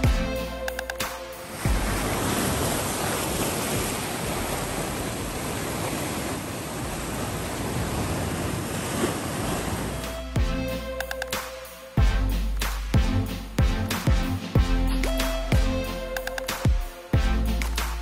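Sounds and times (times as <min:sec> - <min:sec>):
surf rushing between rocks: 0:01.2 - 0:10.1.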